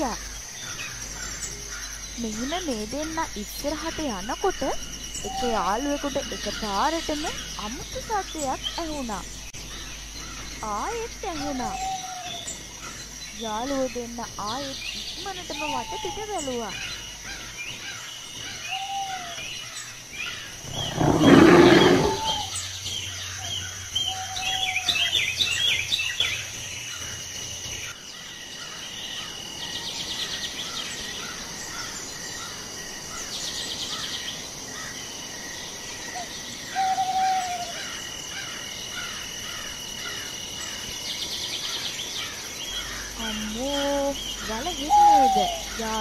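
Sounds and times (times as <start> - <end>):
birds chirping and trilling: 0.0 - 46.0
high insect drone: 0.0 - 46.0.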